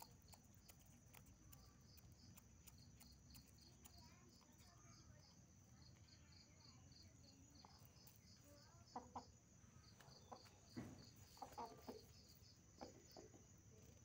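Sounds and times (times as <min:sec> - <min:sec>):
cricket chirping: 0:00.0 - 0:14.0
chickens clucking: 0:07.6 - 0:14.0.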